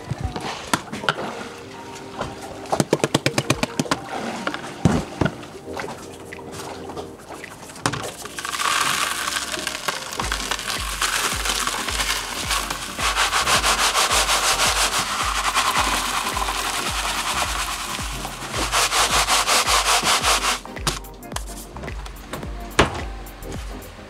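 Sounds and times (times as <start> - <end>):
background music with low beat: 0.0 - 24.0
small rocks pouring into plastic box: 8.2 - 20.6.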